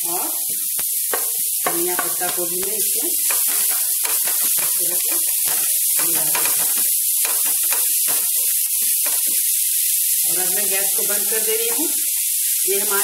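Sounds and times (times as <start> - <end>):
food sizzling in a pan: 0.0 - 13.0.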